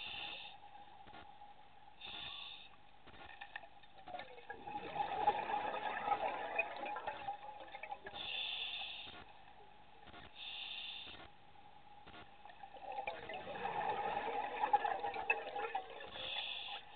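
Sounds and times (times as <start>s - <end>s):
exhaled bubbles gurgling: 3.3s - 9.9s, 12.4s - 16.9s
scuba regulator inhalation hiss: 8.2s - 9.2s, 10.4s - 11.2s, 16.2s - 16.9s.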